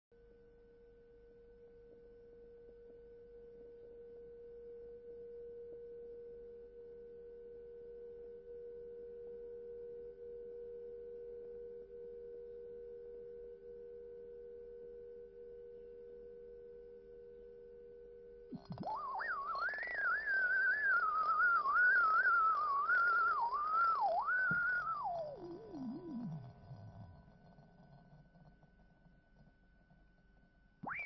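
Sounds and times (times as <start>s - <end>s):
gliding whistle-like tone: 18.6s - 27.2s
sustained pure tones: 18.6s - 28.0s.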